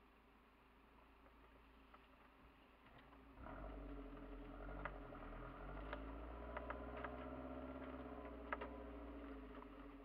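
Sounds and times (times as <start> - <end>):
car engine running under load: 3.4 - 10.0.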